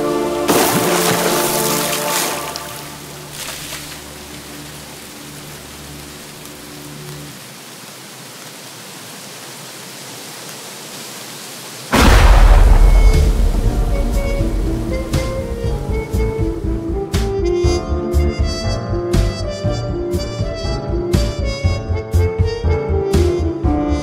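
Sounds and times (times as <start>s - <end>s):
heavy rain hissing: 0.0s - 17.4s
thunder crash: 11.9s - 16.9s.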